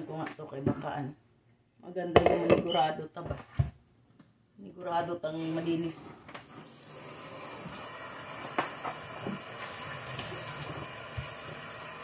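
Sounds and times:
kitchen tap running: 5.5 - 12.0.

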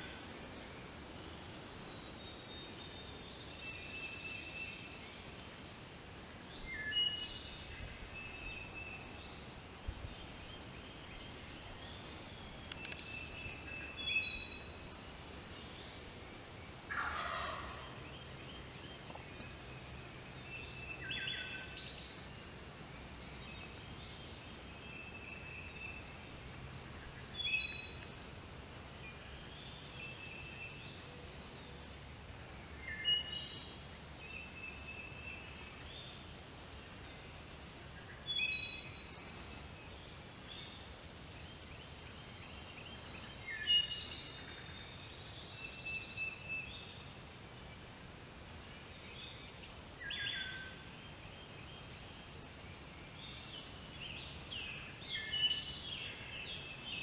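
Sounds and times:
songbirds singing: 0.0 - 57.0.

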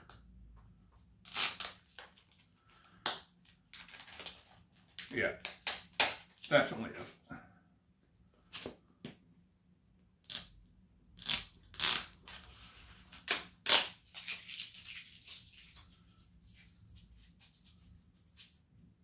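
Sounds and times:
soft packaging rustle: 2.0 - 5.2
packaging crackling and ripping: 3.4 - 6.5.

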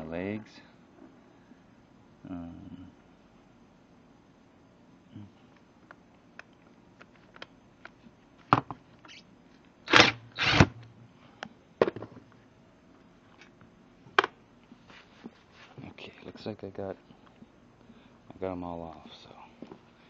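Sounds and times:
impact driver bursts: 9.9 - 10.8.

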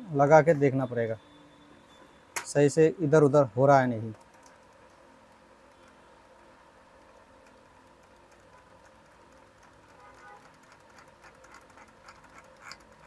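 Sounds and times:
faint steady hum: 0.0 - 13.0
small clicks and taps: 4.1 - 6.0, 6.9 - 13.0.

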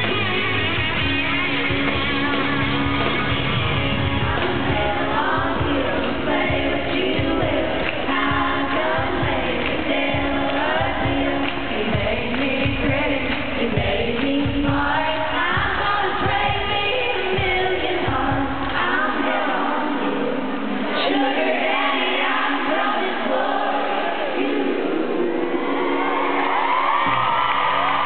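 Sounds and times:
country band playing: 0.0 - 9.4
women singing together: 0.0 - 25.2.

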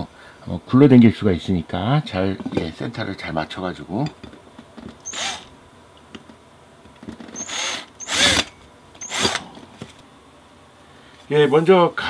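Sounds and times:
cordless drill whining: 5.0 - 5.5, 7.3 - 9.5.

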